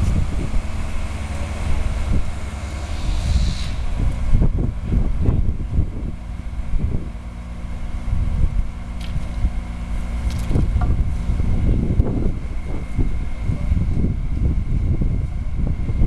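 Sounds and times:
machinery engine hum: 0:00.0 - 0:16.0
wind buffeting microphone: 0:00.0 - 0:16.0.

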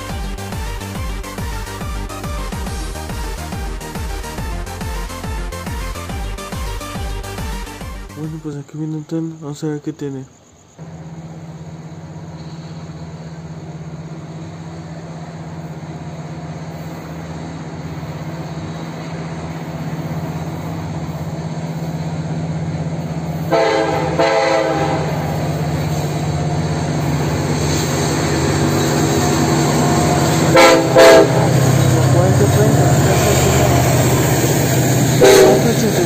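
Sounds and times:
locomotive engine drone: 0:00.0 - 0:09.1, 0:10.4 - 0:36.0
train air horn blasts: 0:23.4 - 0:25.6, 0:30.2 - 0:34.2, 0:35.1 - 0:36.0.

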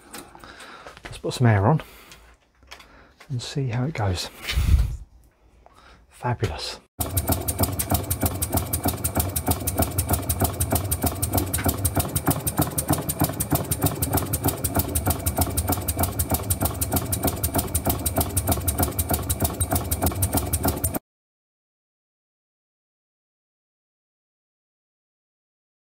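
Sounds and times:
model air engine puffing: 0:07.0 - 0:21.0.

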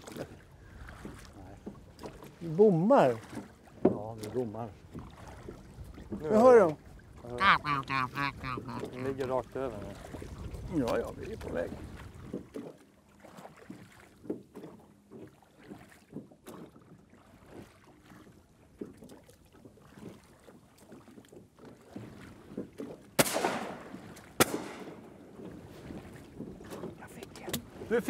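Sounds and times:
water lapping against boat hull: 0:00.0 - 0:28.0
shotgun shots: 0:23.2 - 0:23.8, 0:24.4 - 0:25.0.

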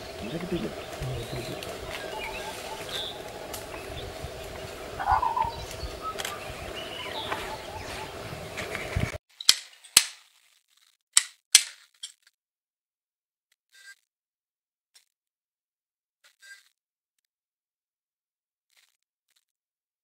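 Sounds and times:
bird calls: 0:00.0 - 0:09.1
steady low drone: 0:00.0 - 0:09.2.

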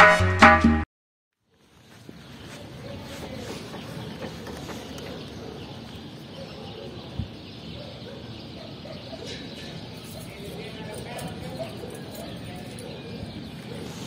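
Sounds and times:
faint bird calls: 0:01.6 - 0:10.2.

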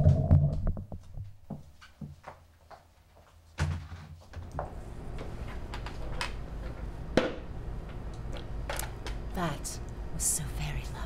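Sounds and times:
low steady hum: 0:04.6 - 0:11.0.

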